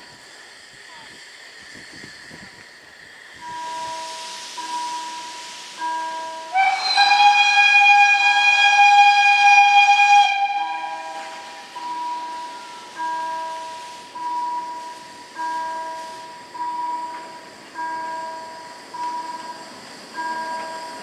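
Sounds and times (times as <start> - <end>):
steam hissing: 0.0 - 21.0
steam locomotive whistle: 3.4 - 17.3
level crossing warning signal: 8.8 - 21.0.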